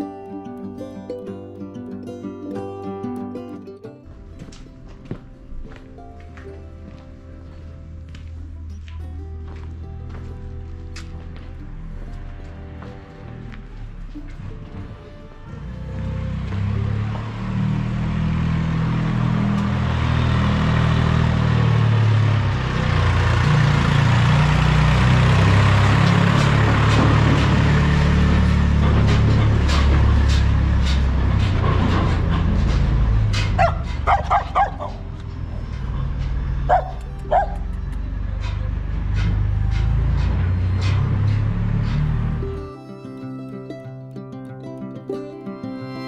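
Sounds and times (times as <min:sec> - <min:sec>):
tractor engine running: 0:04.0 - 0:42.9
dog barking: 0:33.6 - 0:35.0, 0:36.7 - 0:37.6.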